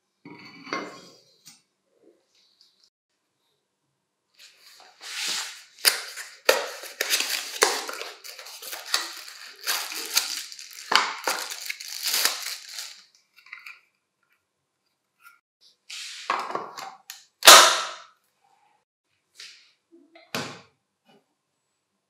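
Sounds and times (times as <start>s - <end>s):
plastic bag crinkling: 5.8s - 13.1s.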